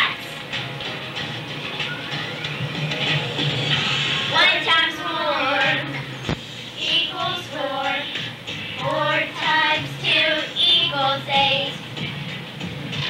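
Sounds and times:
girls singing together: 4.3s - 6.0s, 6.8s - 11.8s.

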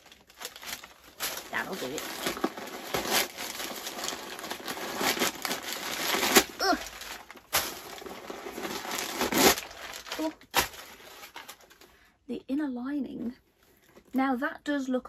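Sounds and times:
sharp paper crackles: 0.0s - 11.9s
paper packing crinkling: 0.0s - 12.0s.

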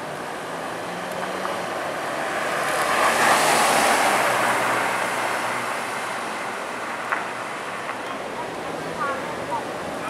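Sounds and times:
car engine passing by: 0.0s - 7.8s
tyre and road noise: 0.0s - 10.0s.

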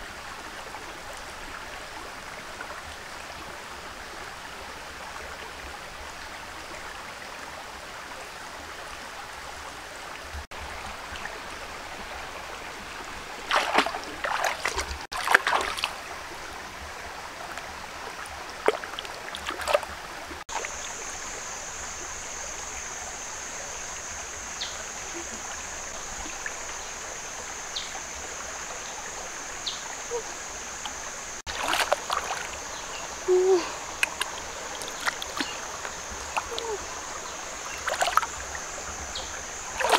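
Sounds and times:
stream running over stones: 0.0s - 39.9s
hands splashing in water: 13.5s - 16.0s, 18.7s - 19.9s, 31.5s - 32.6s, 34.0s - 36.7s, 37.8s - 38.3s.

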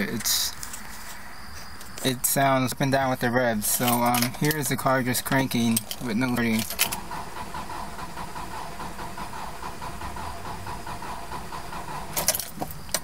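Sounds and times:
engine cranking by starter motor: 3.6s - 13.0s.

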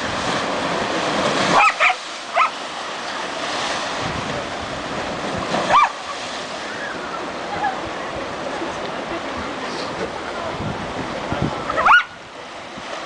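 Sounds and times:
sea waves breaking: 0.0s - 13.0s
dog barking: 1.5s - 2.6s, 5.7s - 6.0s, 11.8s - 12.2s.

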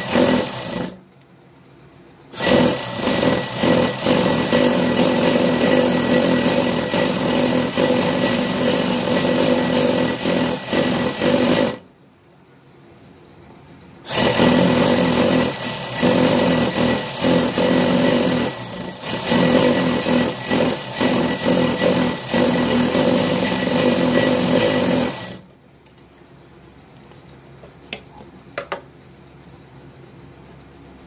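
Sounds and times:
sewing machine running: 0.0s - 1.0s, 2.3s - 11.8s, 14.0s - 25.5s.

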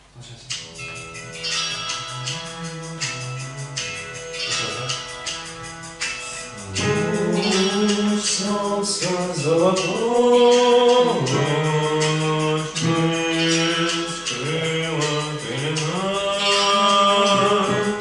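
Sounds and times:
instrumental accompaniment with beat: 0.0s - 18.0s
man singing held notes: 6.4s - 18.0s.

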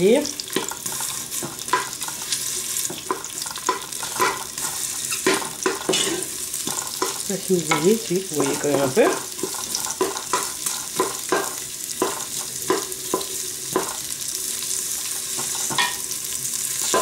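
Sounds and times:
onion and garlic sizzling in oil: 0.0s - 17.0s
stirring strokes: 0.6s - 11.4s.

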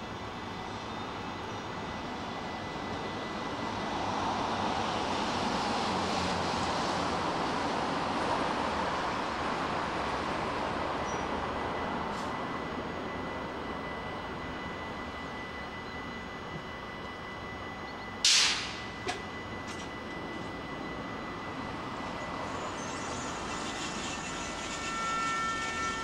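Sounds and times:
electric train humming: 0.0s - 26.0s
faint whining tones: 10.6s - 18.2s, 18.8s - 26.0s.

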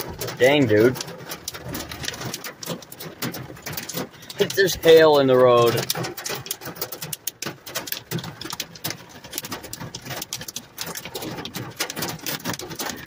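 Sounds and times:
hail and rain on a car roof: 0.0s - 13.0s.

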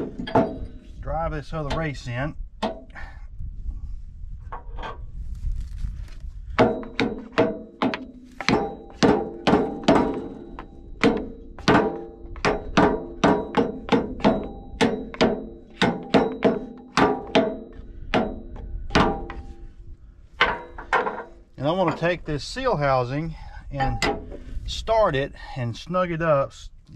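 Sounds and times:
hammer striking metal drift: 6.5s - 19.6s.

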